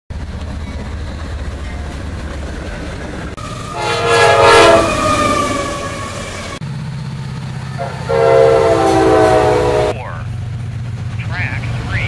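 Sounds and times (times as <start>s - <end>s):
diesel locomotive engine rumble: 0.1s - 12.0s
locomotive air horn: 3.4s - 6.6s, 7.7s - 10.1s.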